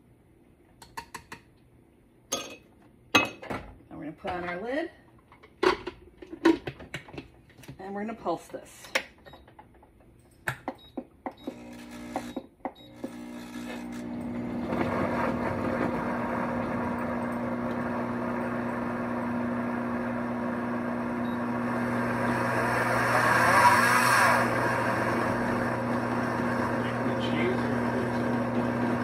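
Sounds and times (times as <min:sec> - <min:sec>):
blender motor chopping: 0:11.4 - 0:29.0.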